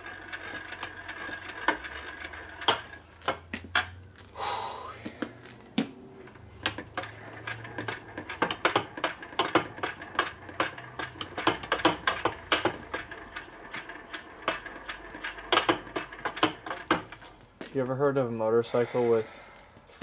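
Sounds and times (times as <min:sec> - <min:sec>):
metallic clicks and knocks of gears: 0:00.0 - 0:04.0, 0:06.3 - 0:17.4.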